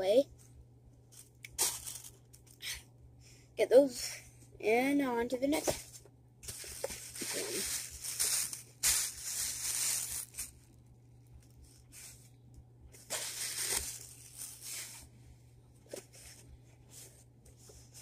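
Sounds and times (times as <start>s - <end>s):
tissue paper rustling and crinkling: 5.7s - 10.6s, 13.0s - 15.1s.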